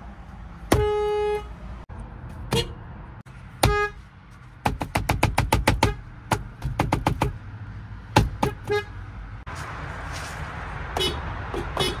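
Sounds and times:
outdoor background noise: 0:00.0 - 0:12.0
car horn short honks: 0:00.7 - 0:01.5, 0:02.5 - 0:02.8, 0:03.6 - 0:04.0, 0:08.4 - 0:08.9, 0:11.0 - 0:12.0.

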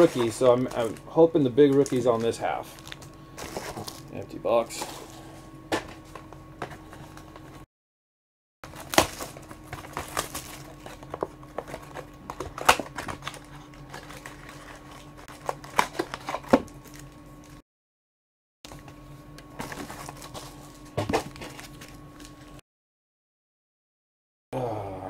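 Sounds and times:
foil card packs tearing and crinkling: 0:00.0 - 0:05.3, 0:08.6 - 0:17.6, 0:19.6 - 0:22.6.

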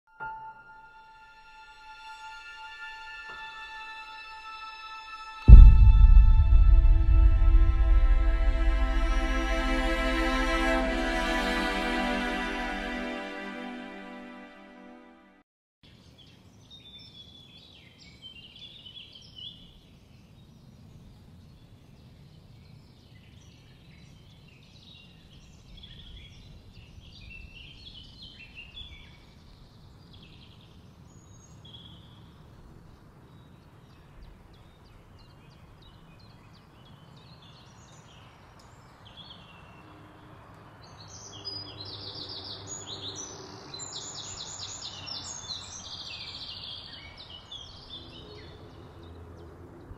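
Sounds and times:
low steady rumble: 0:05.5 - 0:13.3
low hum: 0:05.5 - 0:14.8
bird song of repeated notes: 0:15.9 - 0:49.9.

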